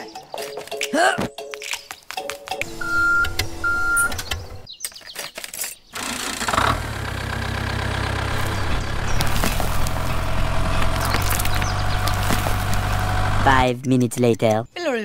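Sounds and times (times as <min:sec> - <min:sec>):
short beeps: 0:02.8 - 0:04.2
toy tractor motor hum: 0:06.0 - 0:13.6.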